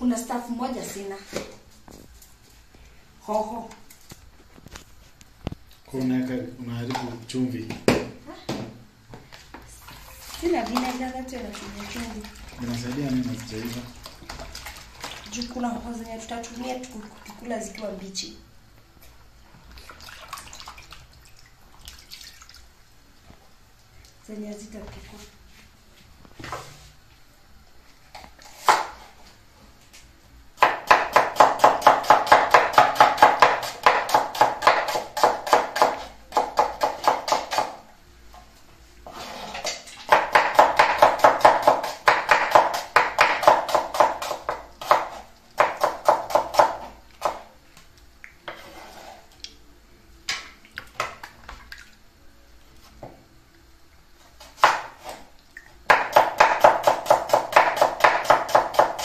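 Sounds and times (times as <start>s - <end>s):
cleaver chopping on wooden board: 30.6s - 37.8s, 55.9s - 59.0s.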